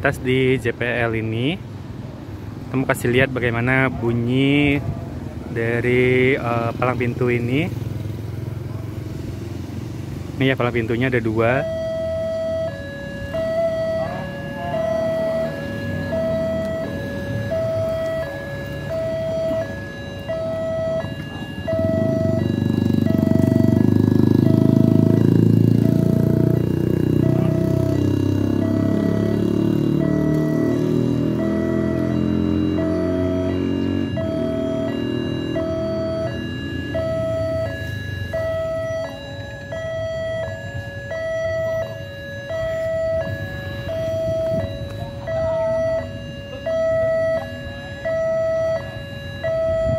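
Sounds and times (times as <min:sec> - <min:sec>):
two-tone warning siren: 0:10.6 - 0:49.9.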